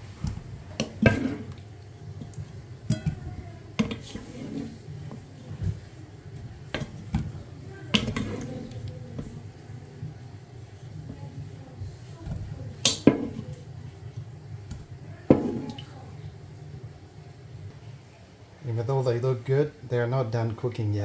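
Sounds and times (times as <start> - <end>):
wooden spatula knocking on pot: 0.3 - 1.6, 2.2 - 5.9, 6.5 - 10.1, 12.3 - 13.6, 14.8 - 15.9.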